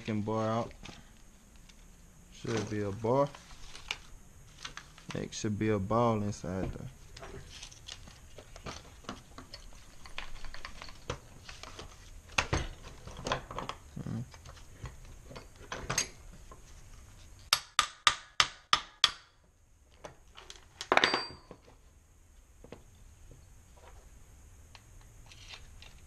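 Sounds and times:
metal tools clinking on table: 20.8 - 21.6.

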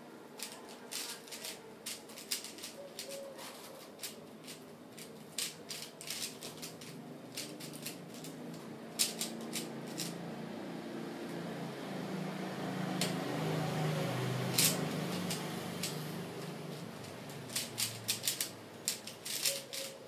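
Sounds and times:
puzzle cube plastic clicks: 0.4 - 10.2, 14.4 - 20.0.

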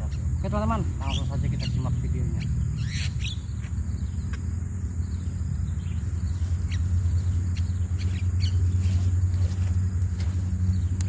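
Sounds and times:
bird chirps: 0.0 - 11.0
high-pitched insect whine: 0.0 - 11.0
loud steady low hum: 0.0 - 11.0.

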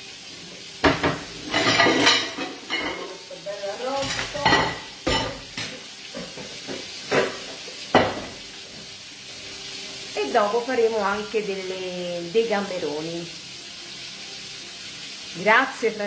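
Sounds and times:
roast sizzling in a pan: 0.0 - 16.0
dishes and cutlery clattering: 0.8 - 3.3, 3.9 - 8.4.

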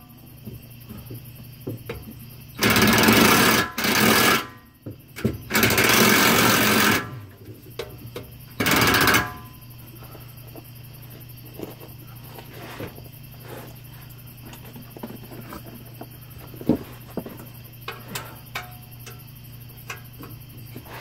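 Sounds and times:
impact wrench hammering: 8.6 - 9.5.

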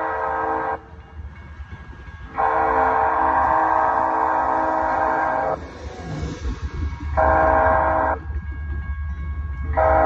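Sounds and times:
locomotive air horn blasts: 0.0 - 0.8, 2.4 - 5.6, 7.2 - 8.2, 9.8 - 10.0.

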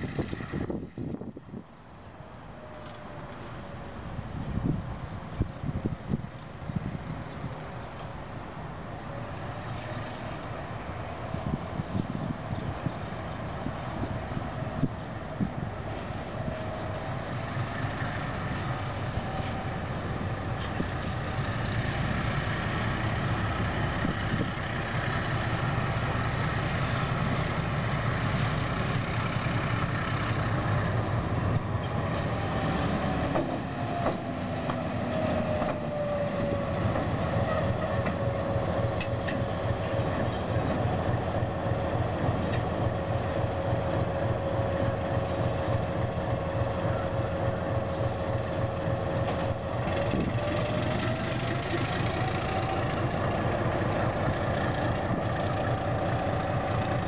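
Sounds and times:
diesel locomotive engine rumble: 0.0 - 57.0
engine whine sliding down: 28.4 - 57.0.

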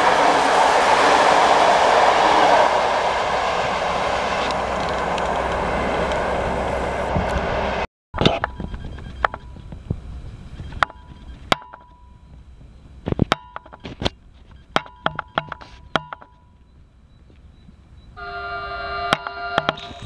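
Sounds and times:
train horn chord: 0.0 - 7.8, 18.2 - 20.0
sharp clicks and knocks: 8.2 - 10.0, 10.7 - 16.6.

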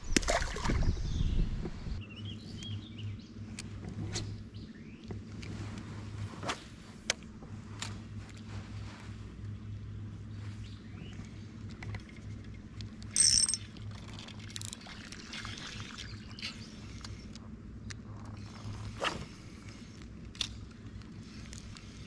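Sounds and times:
reel gears and bail clicking: 11.7 - 15.2.

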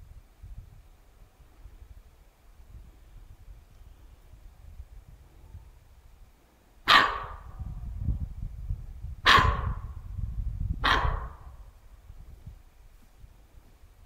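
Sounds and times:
deer barking: 6.8 - 7.5, 9.2 - 9.9, 10.8 - 11.5.

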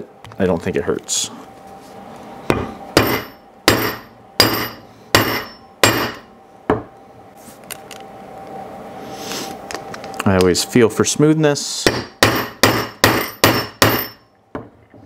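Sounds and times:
hammer striking metal tool: 2.5 - 6.9, 11.8 - 14.7.

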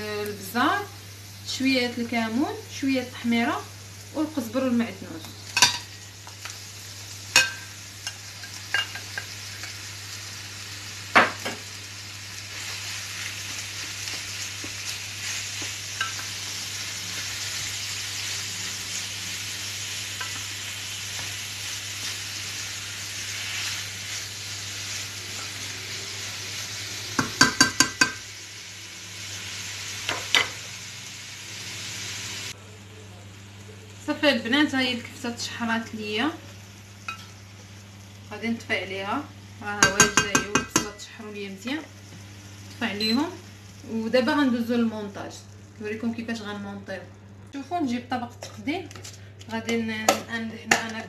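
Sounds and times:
meat and onion sizzling in pan: 0.0 - 51.0
wooden spoon knocking on pan: 27.2 - 28.2, 39.8 - 41.0.

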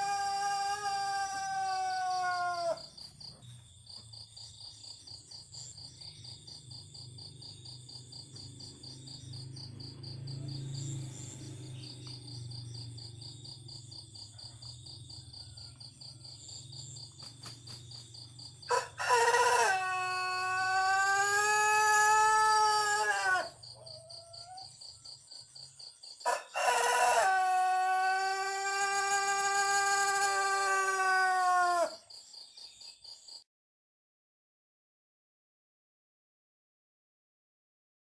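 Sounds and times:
rooster crowing: 0.0 - 3.0, 14.1 - 17.1, 18.6 - 24.8, 26.2 - 32.1
crickets chirping: 0.0 - 33.5
wings flapping: 17.1 - 18.2.

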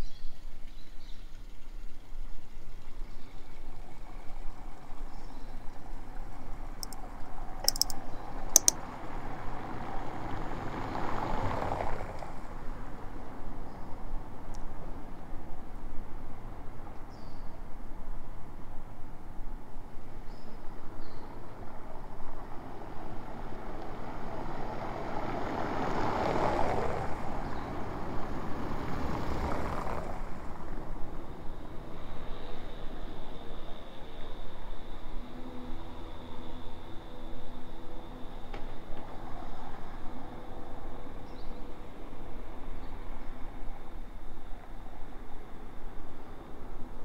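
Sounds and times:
outdoor town ambience: 0.0 - 47.0
short sharp clicks: 7.6 - 8.0, 8.6 - 8.8
vehicle passing by: 23.1 - 31.9.

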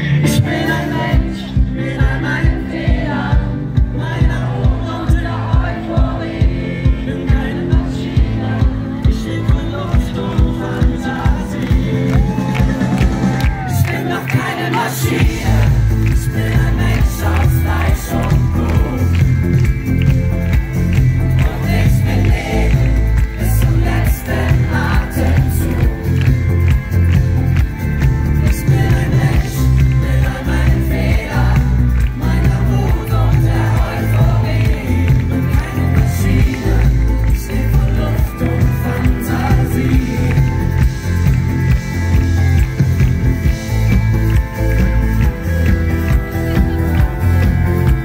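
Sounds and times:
live pop band playing: 0.0 - 48.0
voices singing: 0.2 - 12.8, 13.6 - 19.6, 21.2 - 26.2, 28.5 - 40.8
crowd cheering: 8.4 - 48.0.

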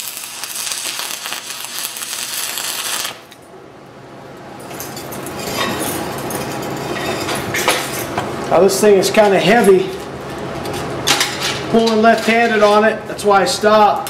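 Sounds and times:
welding arc crackling: 0.0 - 3.5.

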